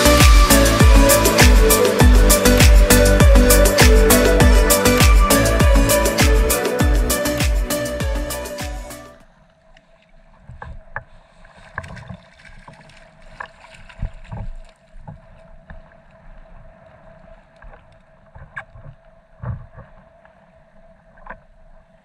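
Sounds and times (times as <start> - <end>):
water slapping hull: 9.8 - 21.6.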